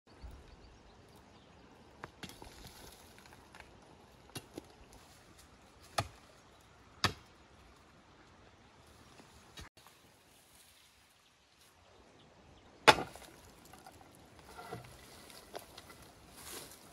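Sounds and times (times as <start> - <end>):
footsteps on loose shale: 13.1 - 16.9.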